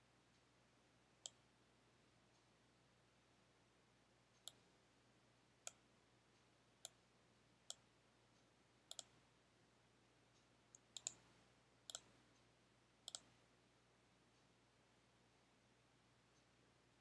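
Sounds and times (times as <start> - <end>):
computer mouse clicking: 4.4 - 4.6, 8.9 - 9.2, 10.7 - 11.3, 11.9 - 12.2, 13.1 - 13.4.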